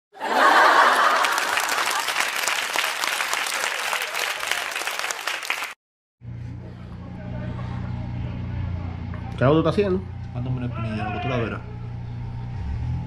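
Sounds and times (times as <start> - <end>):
applause: 0.4 - 5.8.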